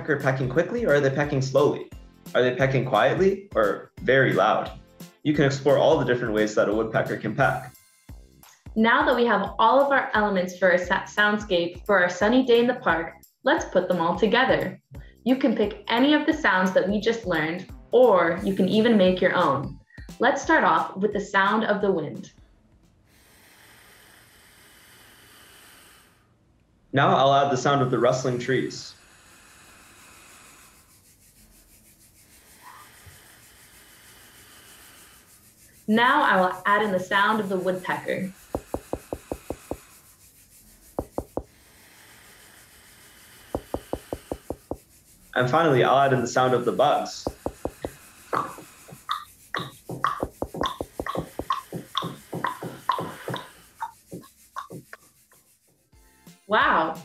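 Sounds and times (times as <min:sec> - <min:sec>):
hands rubbing together: 0:30.5 - 0:55.9
knuckle taps: 0:38.4 - 0:40.0, 0:40.8 - 0:41.6, 0:43.5 - 0:45.0, 0:46.6 - 0:55.4.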